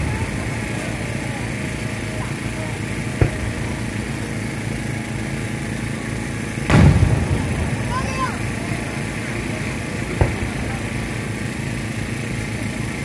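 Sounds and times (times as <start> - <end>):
low background rumble: 0.0 - 13.0
loud firework boom: 3.0 - 4.1, 6.6 - 12.6
firework thump: 3.1 - 4.0, 6.7 - 9.4, 10.0 - 12.0.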